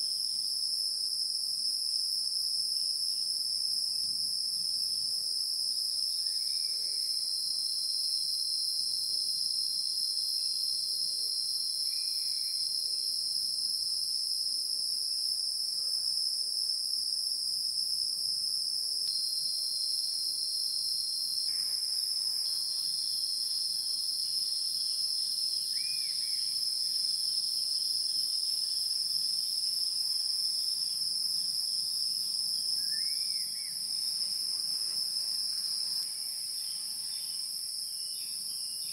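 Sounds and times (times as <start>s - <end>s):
insects buzzing shrilly: 3.9s - 38.9s.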